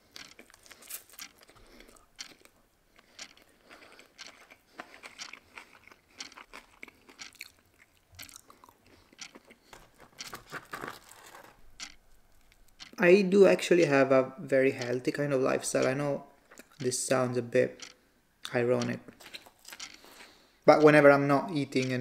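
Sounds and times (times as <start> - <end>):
crunching fried food: 0.0 - 12.8, 19.1 - 20.4
person chewing noodles: 0.0 - 13.0, 16.5 - 16.9, 19.1 - 20.5.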